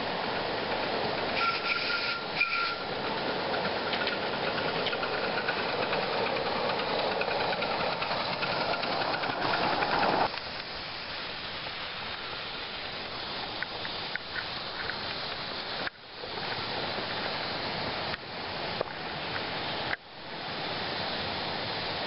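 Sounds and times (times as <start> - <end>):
steady steam hiss: 0.0 - 22.0
steam locomotive hissing and chuffing: 0.0 - 22.0.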